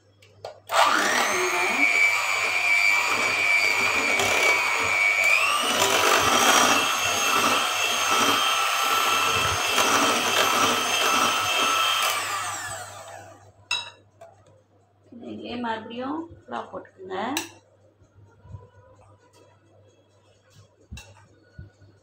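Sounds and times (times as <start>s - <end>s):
electric hand mixer whining: 0.7s - 13.5s.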